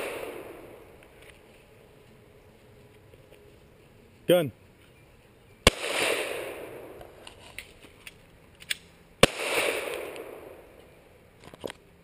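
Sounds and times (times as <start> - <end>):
pistol shot echoing: 0.0 - 0.9, 5.6 - 7.2, 9.2 - 10.7.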